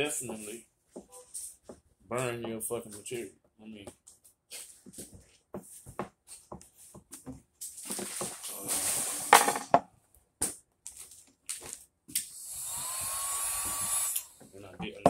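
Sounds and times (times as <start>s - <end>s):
light taps and scrapes: 0.2s - 1.8s
vinyl film crinkling: 10.8s - 11.9s
heat gun blowing with whine: 12.2s - 14.4s.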